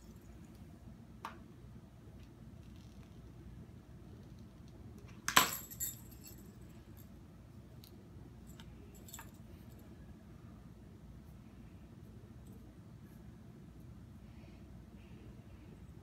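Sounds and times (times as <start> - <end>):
small metal bells clinking: 5.4 - 7.1, 8.4 - 9.8.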